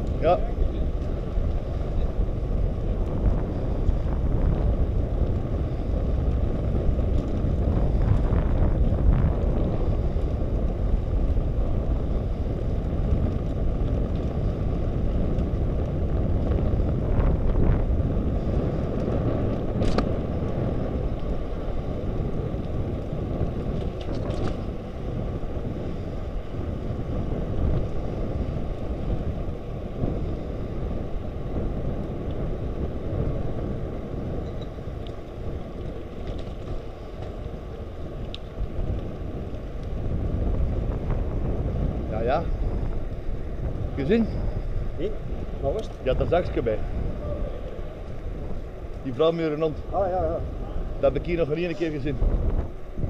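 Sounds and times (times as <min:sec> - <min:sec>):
wind rumbling on microphone: 0:00.0 - 0:53.0
faint clicks: 0:38.2 - 0:40.0.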